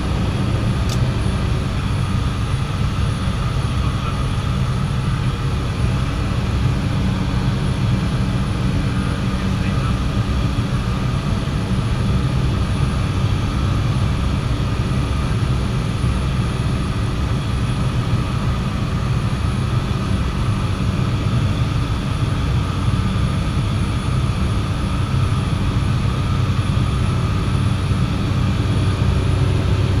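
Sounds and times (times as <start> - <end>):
turboprop engine droning: 0.0 - 30.0.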